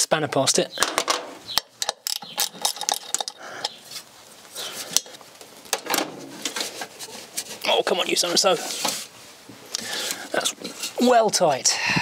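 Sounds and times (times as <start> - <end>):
hand tools clinking on metal: 1.6 - 3.8.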